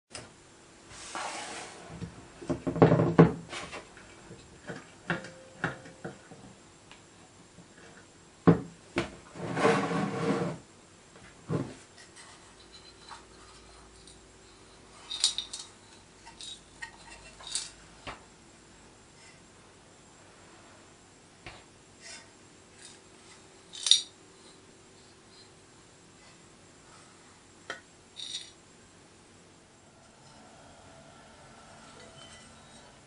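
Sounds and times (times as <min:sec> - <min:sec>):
metal toy parts knocking and clinking: 0:15.1 - 0:17.8, 0:23.7 - 0:24.1, 0:28.2 - 0:28.6.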